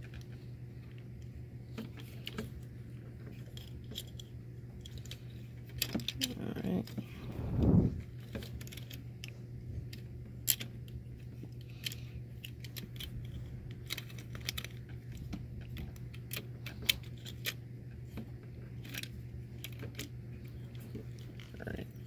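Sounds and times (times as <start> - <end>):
steady low hum: 0.0 - 22.0
plastic toy parts clicking: 3.5 - 7.0, 10.4 - 10.7, 11.8 - 18.2, 18.8 - 20.1.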